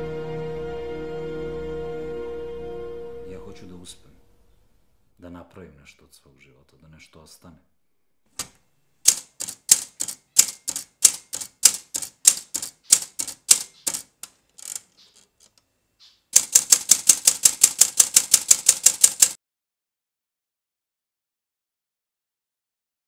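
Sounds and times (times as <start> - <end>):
typewriter keys striking: 8.4 - 15.5, 16.4 - 19.4.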